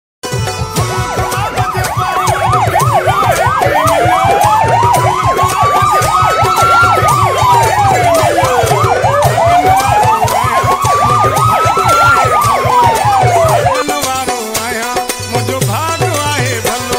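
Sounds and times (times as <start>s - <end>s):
slow wailing siren: 0.8s - 13.9s
fast yelp siren: 0.8s - 14.0s
low rhythmic pulsing: 0.8s - 14.1s.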